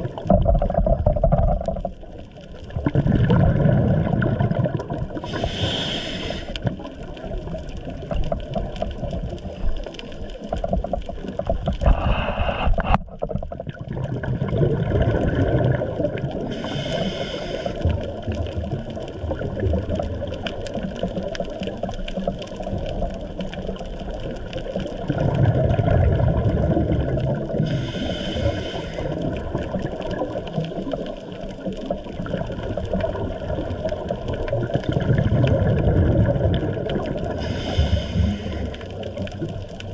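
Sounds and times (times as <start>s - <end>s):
bubbling rumble of exhaled bubbles: 0.0s - 39.9s
hissing regulator inhalations: 5.2s - 6.6s, 16.5s - 17.9s, 27.6s - 29.2s, 37.4s - 39.0s.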